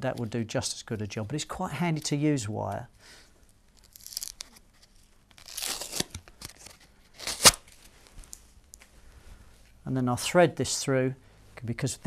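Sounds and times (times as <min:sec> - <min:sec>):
rustling tearing of disc and wire: 0:03.8 - 0:07.8.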